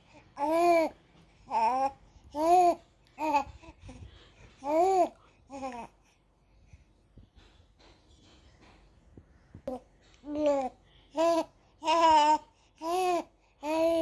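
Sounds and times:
baby cooing and babbling: 0.2s - 3.9s, 4.6s - 6.0s, 9.7s - 14.0s.

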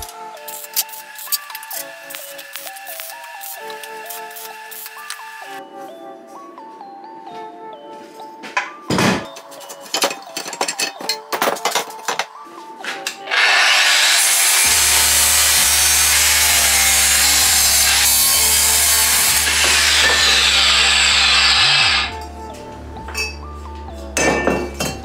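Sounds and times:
angle grinder cutting steel: 13.2s - 22.1s.

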